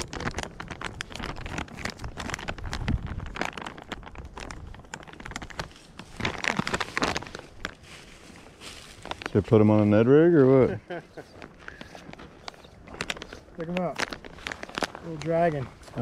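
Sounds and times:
dry leaves crackling and rustling: 0.0 - 16.0.

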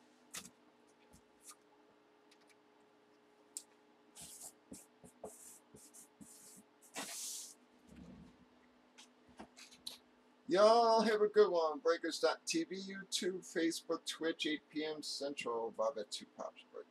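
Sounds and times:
marker scratching on cardboard: 4.2 - 7.5.

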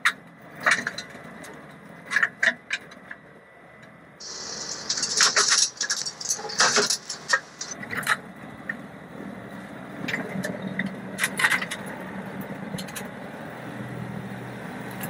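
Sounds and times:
tractor machine drone: 4.2 - 8.0
cracks and rattles of cutting: 4.2 - 8.1.

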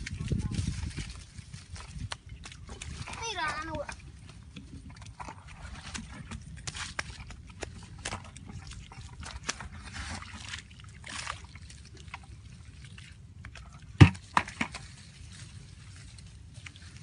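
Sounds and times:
hands squelching in wet mud: 0.0 - 17.0
slaps on mud: 5.9 - 8.3.

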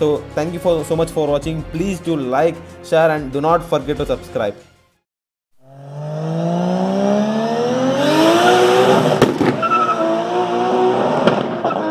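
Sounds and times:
car engine accelerating: 5.6 - 11.9.

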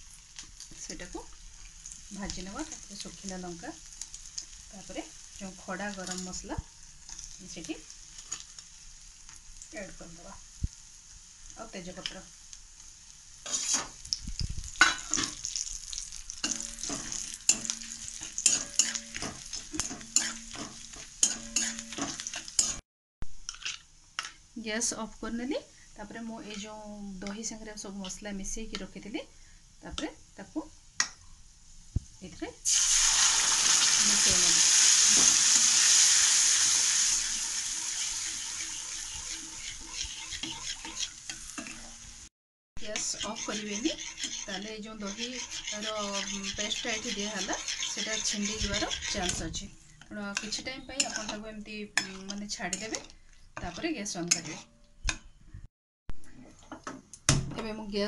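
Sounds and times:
spices sizzling in hot oil: 0.0 - 54.8
metal spatula scraping pan: 13.4 - 14.0, 16.4 - 22.8, 37.9 - 42.0, 42.8 - 49.7, 50.3 - 51.4, 52.0 - 54.8.

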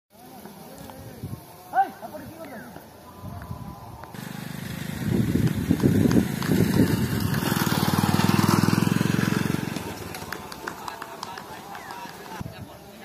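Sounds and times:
small engine puttering: 4.2 - 12.4.

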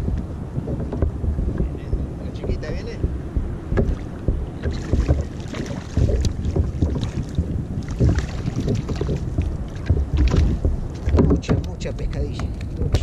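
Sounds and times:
water slapping around kayak: 0.0 - 13.0
wind buffeting microphone: 0.0 - 13.0
sharp water splashes: 1.9 - 11.9.

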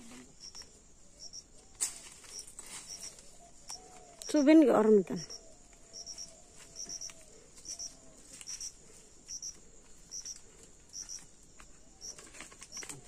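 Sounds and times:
high-pitched insect hum: 0.0 - 13.0
insect double chirp: 0.0 - 13.0
rustling steps through undergrowth: 1.7 - 4.5, 5.4 - 13.0.

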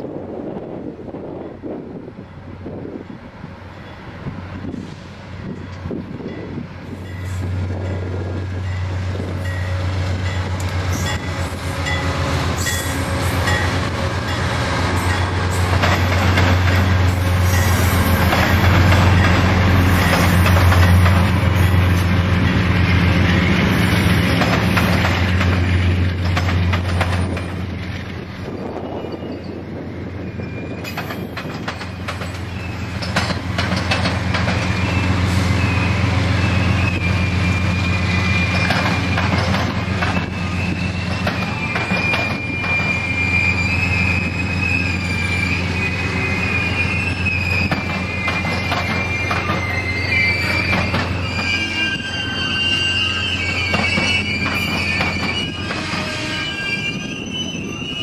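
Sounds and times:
train wheels squealing: 3.8 - 58.0
wheels clacking over rail joints: 10.2 - 27.7, 30.8 - 35.1, 38.4 - 43.0, 47.3 - 51.6.

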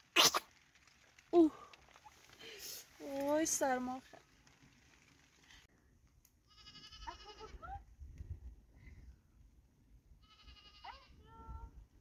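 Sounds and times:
faint livestock bleating: 6.5 - 7.7, 10.2 - 11.6.

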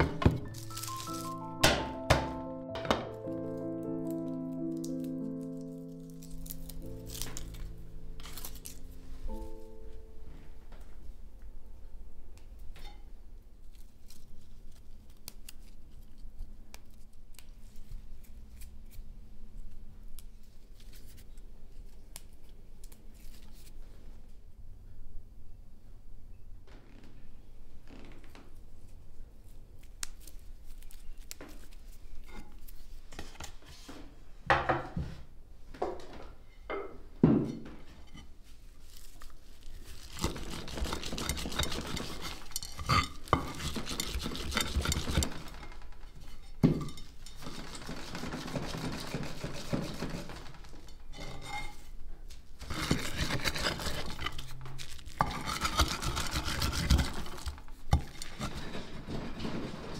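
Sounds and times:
stone scraping a clay bowl: 40.0 - 45.6, 52.6 - 59.9.

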